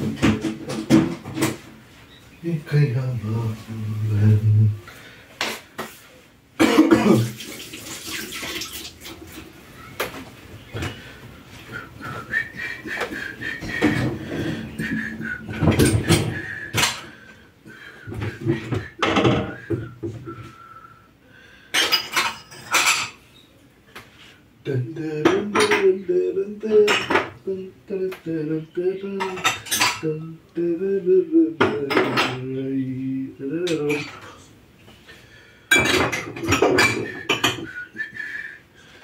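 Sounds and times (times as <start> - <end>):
dishes and cutlery clinking: 13.6 - 17.1, 21.7 - 23.2, 25.2 - 26.0, 26.7 - 27.4, 29.1 - 30.2, 31.6 - 32.5, 33.7 - 34.3, 35.7 - 37.8.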